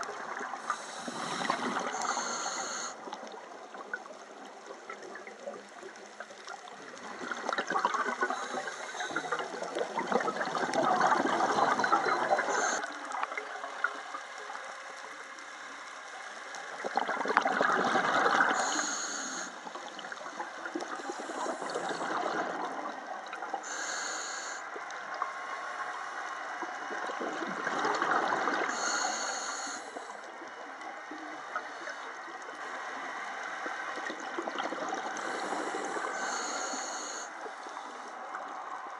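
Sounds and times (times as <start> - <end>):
regulator inhalation hiss: 0.6 - 3.0, 8.3 - 9.4, 18.5 - 19.6, 23.6 - 24.8, 28.7 - 30.2, 35.2 - 37.9
exhaled bubbles rushing: 6.8 - 12.8, 16.8 - 18.6, 19.7 - 23.6, 27.0 - 28.7.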